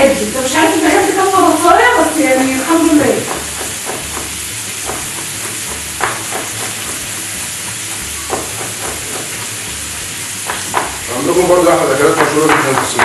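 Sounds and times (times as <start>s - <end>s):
meat sizzling in a frying pan: 0.0s - 13.0s
knife chopping on wooden board: 3.1s - 9.8s, 10.4s - 11.0s.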